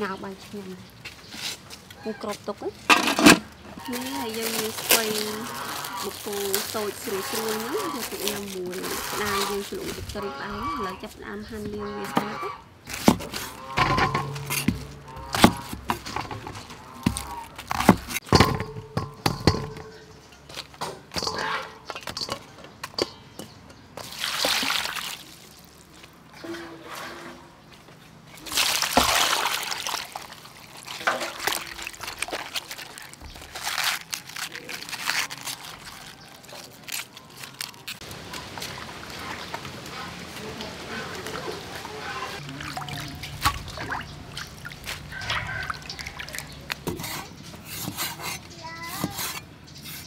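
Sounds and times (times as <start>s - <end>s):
water splashing in steel bowl: 24.0s - 26.3s, 28.4s - 33.8s, 38.1s - 46.8s.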